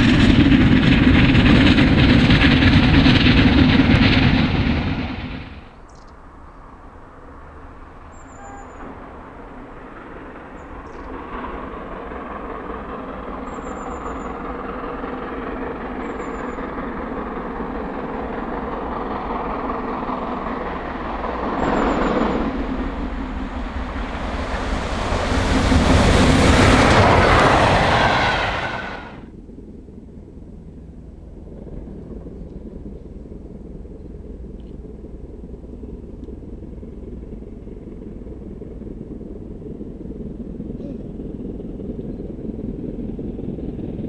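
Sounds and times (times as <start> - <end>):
faint bird chirps: 5.8 - 6.6, 8.1 - 9.0
steam locomotive exhaust: 6.8 - 29.3.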